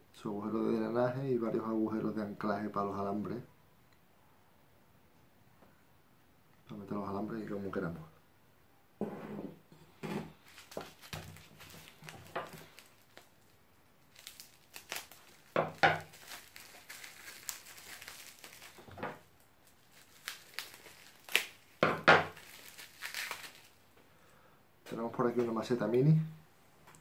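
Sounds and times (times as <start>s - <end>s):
packing wrap crinkling: 10.4s - 24.0s.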